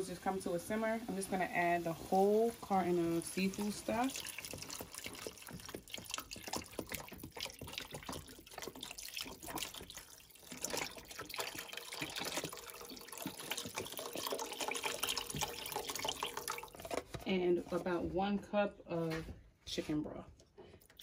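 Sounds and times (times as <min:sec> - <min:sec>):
sauce simmering: 0:00.0 - 0:17.0
liquid pouring into a pan: 0:00.2 - 0:17.0.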